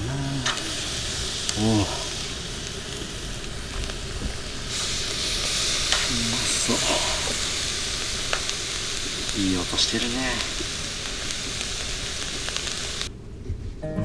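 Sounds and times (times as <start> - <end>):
fish sizzling on a grill: 0.0 - 13.1.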